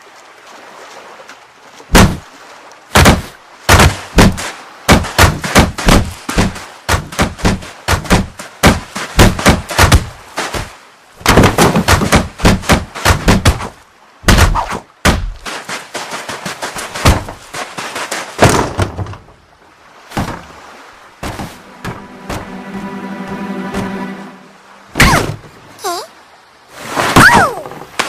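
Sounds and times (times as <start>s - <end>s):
wooden crate banging: 3.0s - 13.7s, 16.4s - 17.6s, 18.4s - 19.3s, 21.2s - 22.5s.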